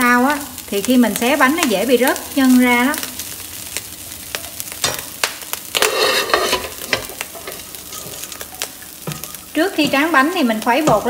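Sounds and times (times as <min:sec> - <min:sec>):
faint sizzle: 0:00.0 - 0:11.0
ladle scraping on wok: 0:05.7 - 0:10.2.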